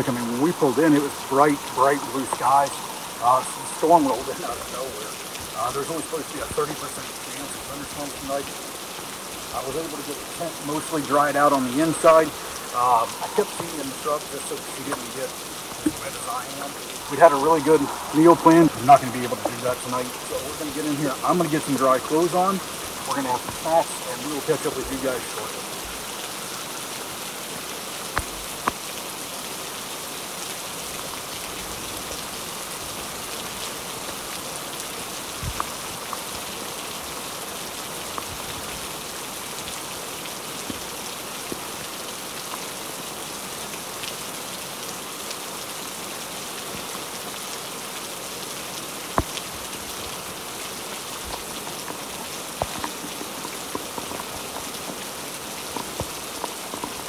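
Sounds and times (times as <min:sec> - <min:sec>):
single raindrops striking: 0:00.0 - 0:26.8, 0:28.1 - 0:29.0, 0:49.1 - 0:57.0
rain on tent fabric: 0:00.0 - 0:57.0.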